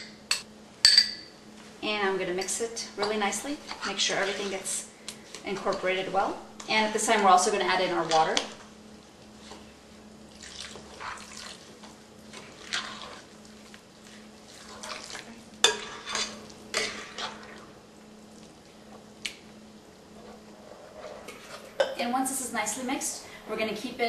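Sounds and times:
spoon scraping batter in bowl: 3.6s - 6.0s, 12.3s - 17.5s.

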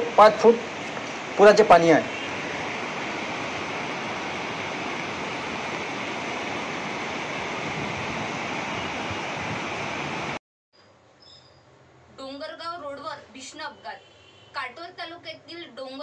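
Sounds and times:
river water rushing: 0.0s - 10.4s.

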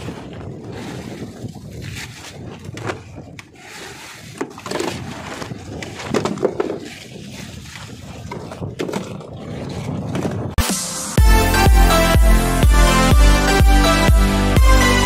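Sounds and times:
water splashing: 0.0s - 10.7s
pail knocking on wooden hull: 4.4s - 7.0s, 7.7s - 10.4s.

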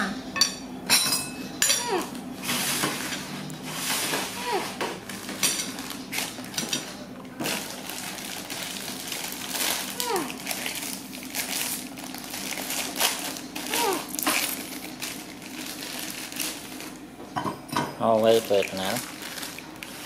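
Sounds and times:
plastic packet crinkling and tearing: 7.4s - 17.0s, 18.2s - 20.0s.

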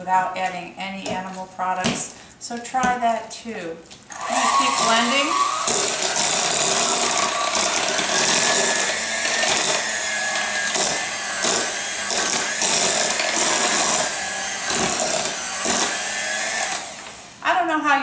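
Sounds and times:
beaters churning mash: 4.1s - 17.1s
hand mixer whining: 4.1s - 17.4s.

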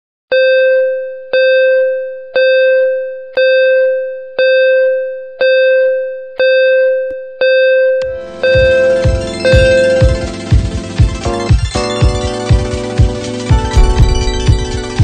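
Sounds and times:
music: 8.0s - 15.0s.

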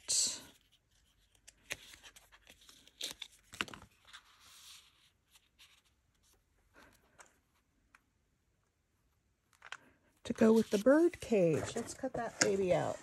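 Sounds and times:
paper rustling: 0.6s - 7.2s, 9.5s - 13.0s.

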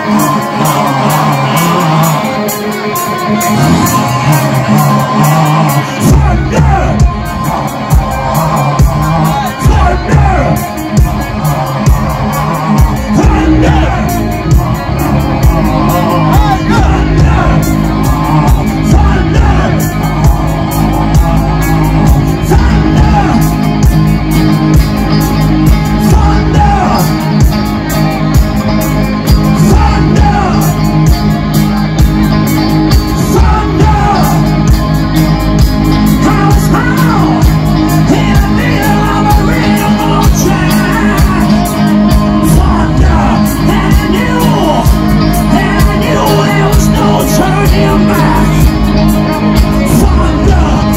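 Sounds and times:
bass guitar: 0.0s - 50.9s
drum kit: 0.0s - 50.9s
electric guitars: 0.0s - 50.9s
person singing: 0.0s - 50.9s.

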